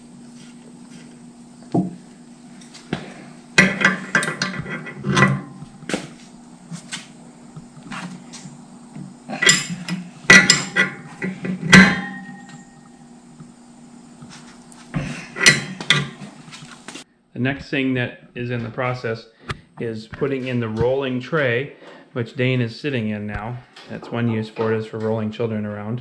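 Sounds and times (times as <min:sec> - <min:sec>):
wrench clinking on metal: 0:09.4 - 0:12.8.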